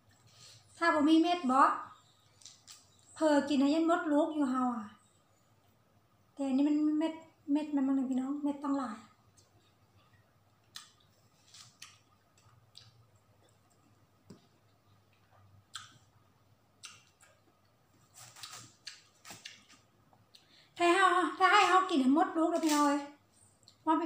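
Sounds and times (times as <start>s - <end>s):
person eating watermelon: 10.6s - 14.0s, 14.6s - 16.1s, 16.8s - 20.6s
knife cutting melon: 18.0s - 19.8s.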